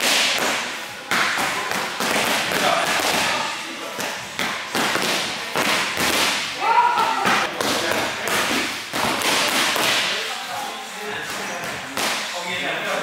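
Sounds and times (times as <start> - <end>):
boxing gloves hitting pads: 0.0 - 3.4, 4.0 - 6.5, 7.2 - 10.1.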